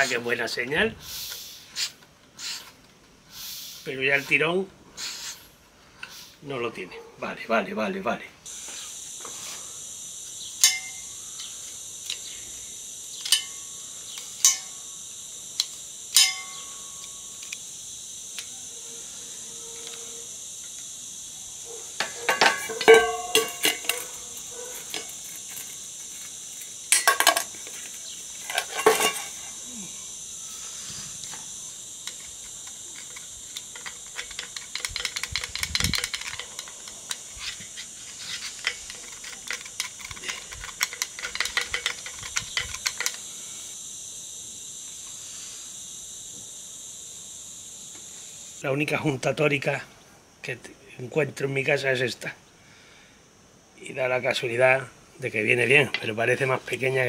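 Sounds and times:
loud metal clanks: 0:22.0 - 0:24.1
metal tools clinking and clattering: 0:22.0 - 0:25.7, 0:26.9 - 0:27.8, 0:28.4 - 0:29.5, 0:38.4 - 0:43.2
small rattling clicks: 0:32.0 - 0:43.3.

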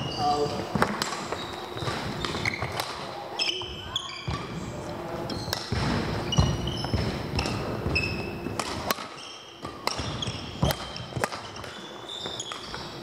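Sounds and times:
court shoes squeaking: 0:00.0 - 0:13.0
racket hitting shuttlecock: 0:00.7 - 0:03.1, 0:05.5 - 0:11.8.

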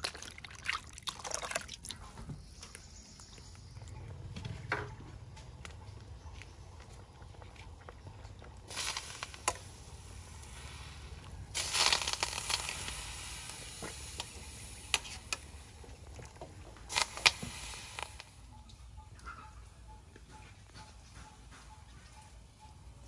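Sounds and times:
water splashing and dripping: 0:00.0 - 0:03.3.

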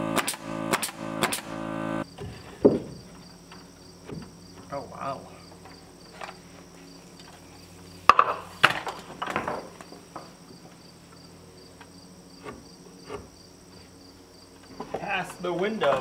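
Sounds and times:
crickets chirping: 0:02.0 - 0:15.9.

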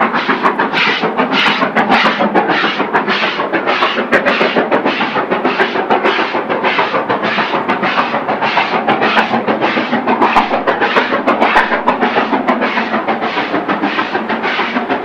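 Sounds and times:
steam locomotive chuffing: 0:00.0 - 0:15.0.

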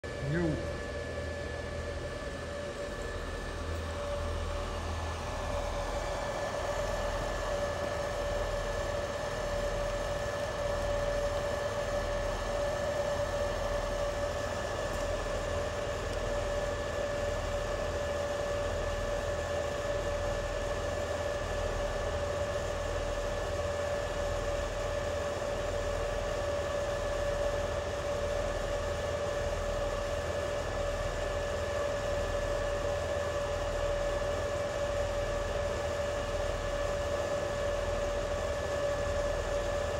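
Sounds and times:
machine hum with whine: 0:00.0 - 0:39.9.

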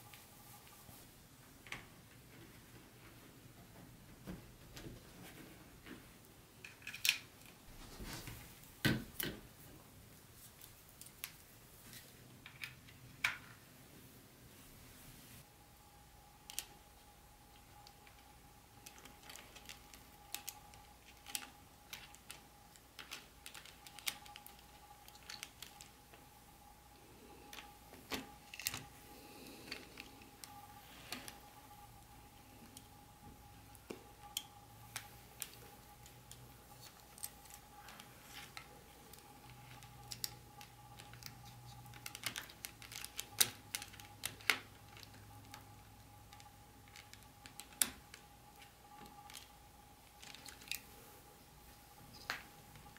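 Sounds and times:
faint steady hum: 0:00.0 - 0:52.9
small clicks and taps: 0:17.5 - 0:26.2.

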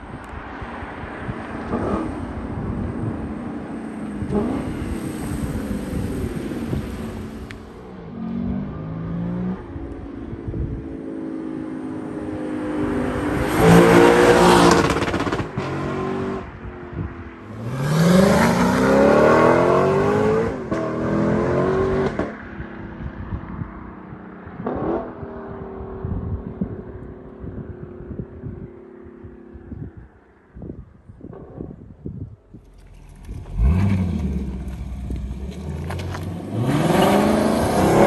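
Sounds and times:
car driving off: 0:17.4 - 0:22.4, 0:32.6 - 0:38.0
car engine revving: 0:32.6 - 0:38.0.

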